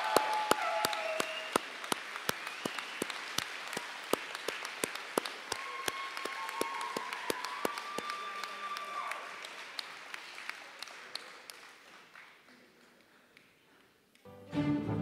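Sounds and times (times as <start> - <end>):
audience cheering: 0.0 - 9.9
audience clapping: 0.0 - 14.3.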